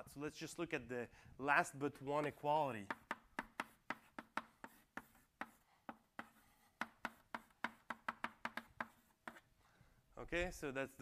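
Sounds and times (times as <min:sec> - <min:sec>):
chalk tapping on blackboard: 0:02.8 - 0:09.5.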